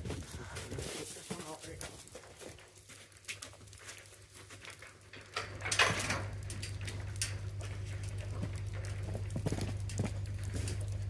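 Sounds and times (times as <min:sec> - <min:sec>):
footsteps on snowy straw: 0:00.0 - 0:04.8
steady low hum: 0:00.0 - 0:11.0.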